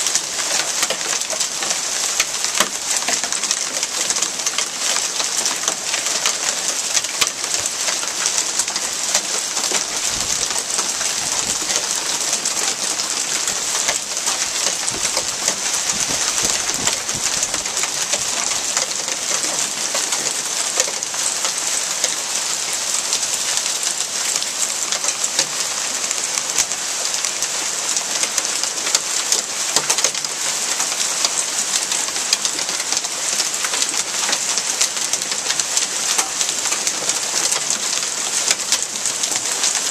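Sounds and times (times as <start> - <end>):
heavy rain and hail falling: 0.0 - 39.9.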